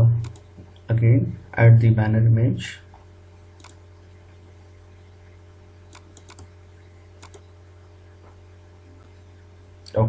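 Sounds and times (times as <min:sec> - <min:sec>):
steady low hum: 0:00.0 - 0:10.0
computer mouse clicks: 0:00.2 - 0:00.5, 0:03.6 - 0:03.8, 0:05.9 - 0:06.5, 0:07.2 - 0:07.5.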